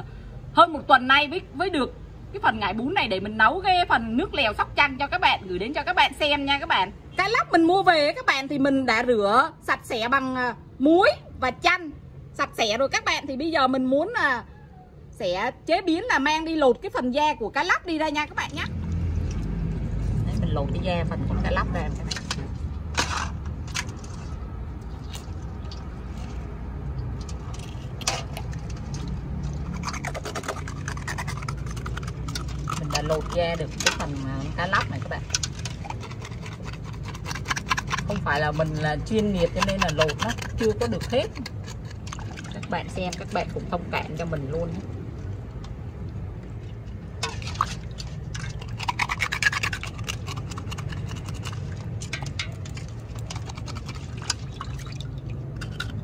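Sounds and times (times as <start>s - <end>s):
food scraping and clicking: 21.9s - 44.4s, 45.4s - 56.0s.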